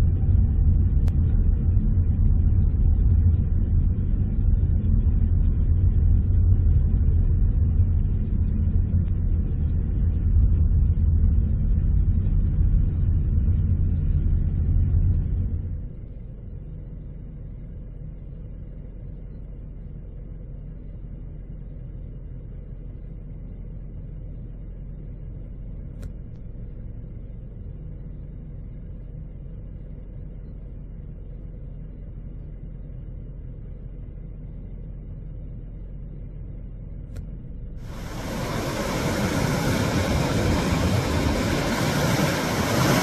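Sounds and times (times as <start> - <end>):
muffled car engine idling: 0.0 - 43.0
faint click: 26.0 - 26.5
muffled rough surf: 37.8 - 43.0.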